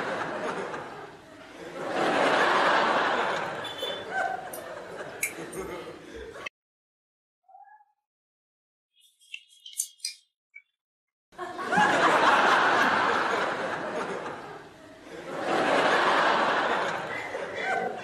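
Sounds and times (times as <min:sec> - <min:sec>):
crowd laughing: 0:00.0 - 0:06.5, 0:11.4 - 0:18.0.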